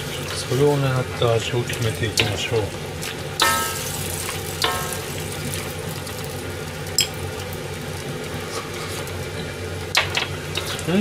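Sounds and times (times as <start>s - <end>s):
broth simmering and sizzling in wok: 0.0s - 11.0s
metal ladle clanging against wok: 3.4s - 3.9s, 4.6s - 5.0s.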